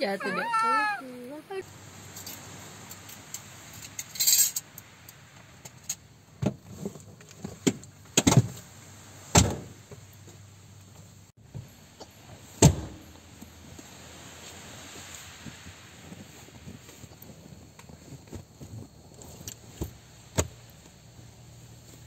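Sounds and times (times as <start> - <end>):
scraping rustle: 1.9 - 4.8, 13.6 - 20.9.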